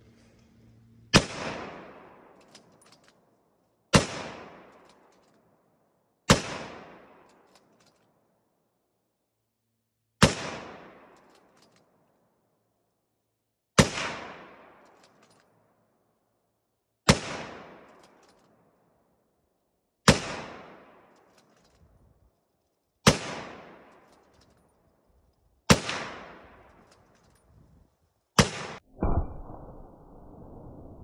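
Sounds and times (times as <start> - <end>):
rifle shots with echo: 1.1 - 2.8, 3.9 - 5.1, 6.3 - 7.5, 10.2 - 11.5, 13.8 - 15.3, 17.1 - 18.4, 20.0 - 21.3, 23.0 - 24.4, 25.6 - 27.1, 28.4 - 29.6
dull drawn-out boom: 28.8 - 31.0.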